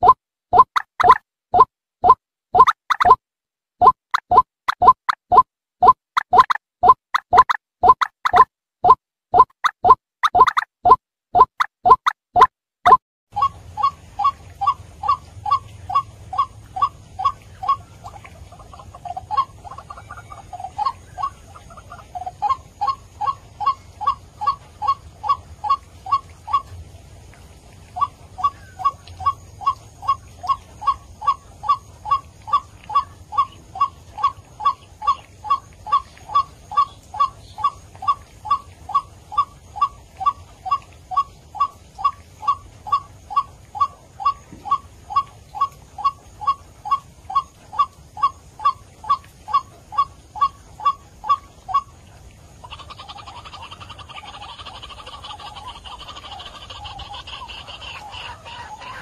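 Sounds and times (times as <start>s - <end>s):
waterhen harsh calls: 12.9s - 59.0s.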